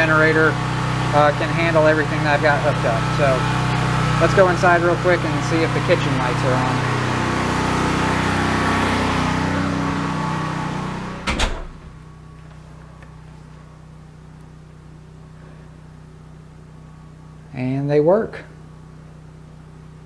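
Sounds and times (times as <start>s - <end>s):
generator humming: 0.0s - 20.0s
door shutting: 11.0s - 12.0s.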